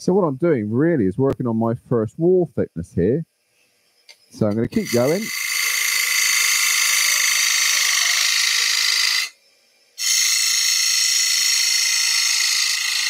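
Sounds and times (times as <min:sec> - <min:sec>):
bowl gouge cutting wood on lathe: 0:04.8 - 0:09.4, 0:10.0 - 0:13.0.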